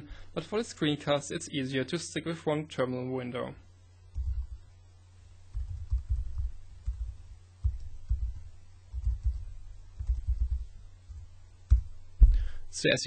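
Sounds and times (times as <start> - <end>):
low hum: 3.6 - 12.8
keyboard typing: 4.1 - 4.7, 5.5 - 11.9.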